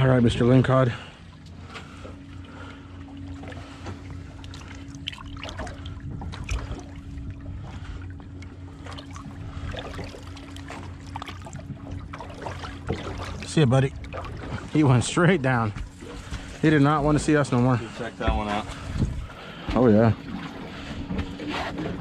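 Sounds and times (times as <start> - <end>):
trickling water: 0.0 - 21.3
steady low hum: 0.0 - 22.0
small water splashes: 1.9 - 16.7.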